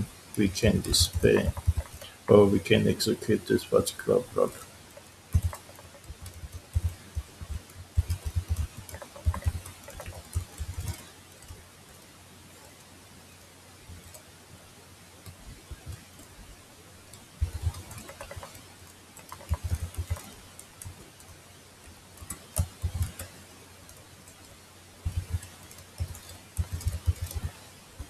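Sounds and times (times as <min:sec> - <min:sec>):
computer keyboard typing: 0:00.4 - 0:11.6, 0:17.1 - 0:28.0.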